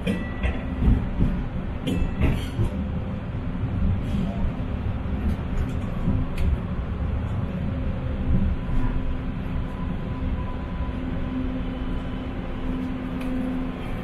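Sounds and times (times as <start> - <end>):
low rumble of train wheels: 0.0 - 14.0
train motor hum: 0.0 - 14.0.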